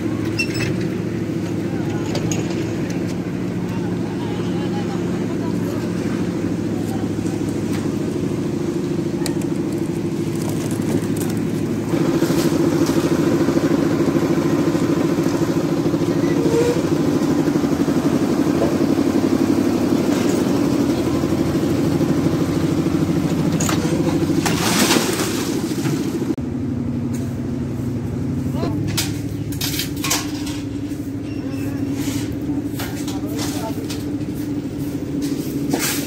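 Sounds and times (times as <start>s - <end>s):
concrete mixer engine running: 0.0s - 36.0s.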